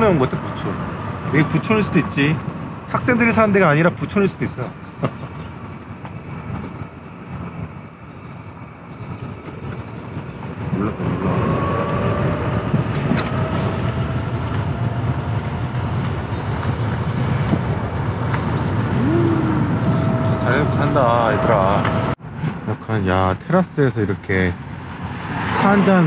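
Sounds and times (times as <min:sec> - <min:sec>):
road and engine rumble: 0:00.0 - 0:26.0
faint rising whine: 0:10.7 - 0:22.2.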